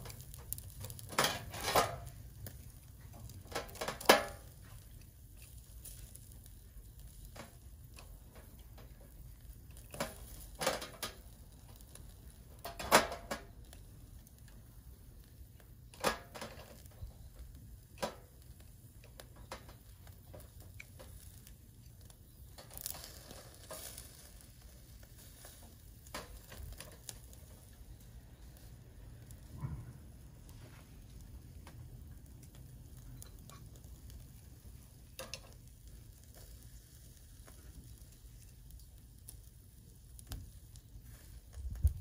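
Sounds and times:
metal tongs clicking on grate: 0.0 - 6.3, 35.2 - 35.6
meat sizzling on grill: 0.0 - 42.0.

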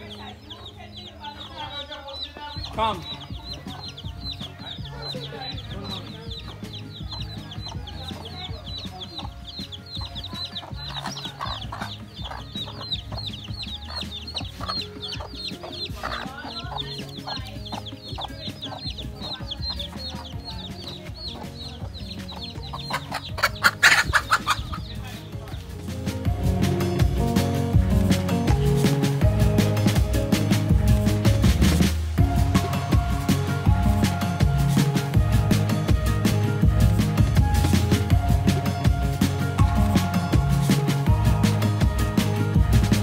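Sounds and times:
hen clucking: 0.0 - 26.5
chicks peeping: 0.0 - 43.0.

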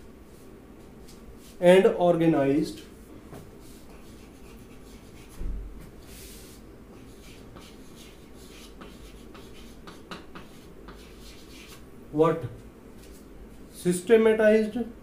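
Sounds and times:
chalk tapping on board: 3.3 - 5.4, 6.9 - 11.8
chalk scratching on chalkboard: 3.6 - 5.4, 6.0 - 11.8.

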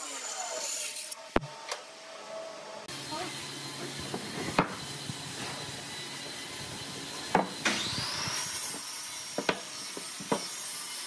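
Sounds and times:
high machine whine: 0.0 - 8.8.

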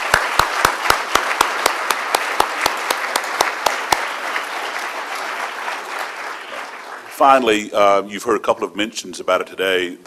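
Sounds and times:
person clapping close by: 0.0 - 4.8
audience applauding: 0.0 - 7.7.

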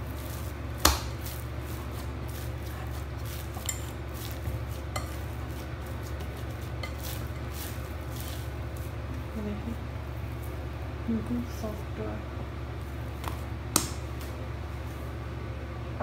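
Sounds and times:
dough being punched down: 0.8 - 1.3.

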